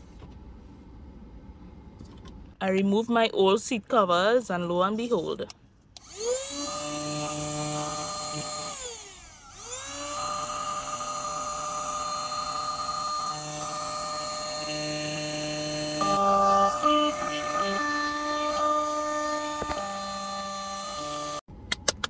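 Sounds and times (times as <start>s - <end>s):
handheld vacuum motor whining: 6.0s - 21.4s.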